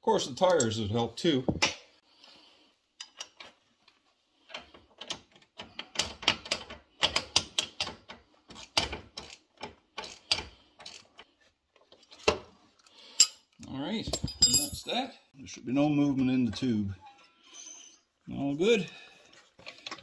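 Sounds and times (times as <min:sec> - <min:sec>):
metal parts clicking and clunking: 0:04.5 - 0:15.0.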